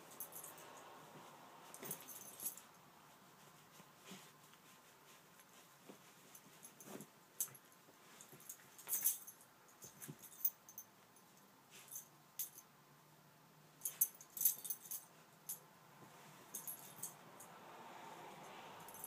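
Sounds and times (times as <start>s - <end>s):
metallic collar tag jingles: 0.0s - 2.8s, 6.2s - 12.7s, 13.8s - 15.6s, 16.5s - 17.2s
fabric rustling: 0.0s - 10.5s, 13.8s - 17.3s.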